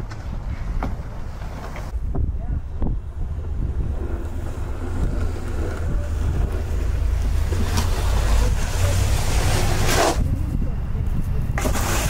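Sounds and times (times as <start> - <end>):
wind buffeting microphone: 1.9 - 12.0
snow shovel scraping sidewalk: 3.9 - 10.4, 11.6 - 12.0.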